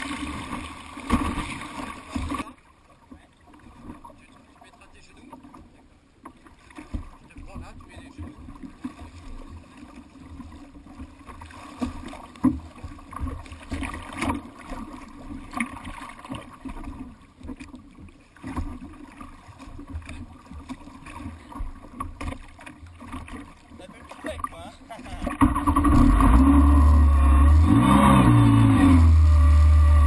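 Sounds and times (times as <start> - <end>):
water slapping against hull: 0.0 - 30.0
jet ski engine idling: 25.9 - 30.0.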